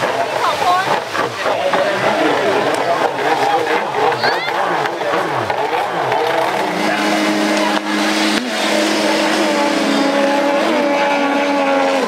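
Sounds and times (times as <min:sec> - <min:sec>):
jet ski engines racing: 0:00.0 - 0:12.0.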